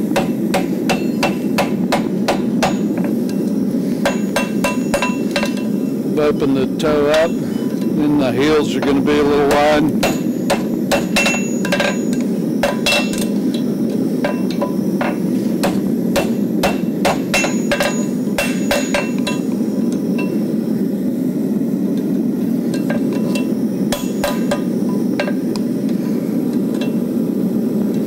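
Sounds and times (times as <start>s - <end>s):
hammer striking horseshoe on anvil: 0.2s - 3.1s, 4.0s - 5.7s, 8.8s - 13.3s, 14.2s - 19.5s, 22.8s - 25.4s.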